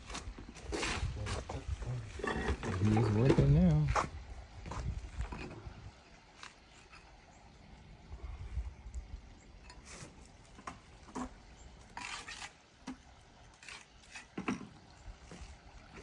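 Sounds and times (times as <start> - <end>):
stone scraping in mortar: 0.5 - 3.6, 11.1 - 12.7, 13.6 - 14.7.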